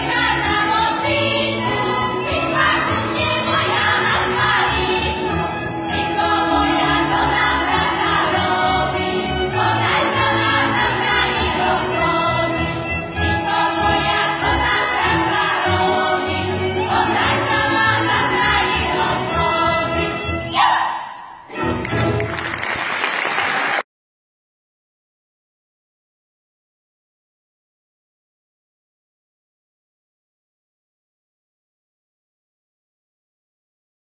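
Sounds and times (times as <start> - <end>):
women's vocal group singing: 0.0 - 21.0.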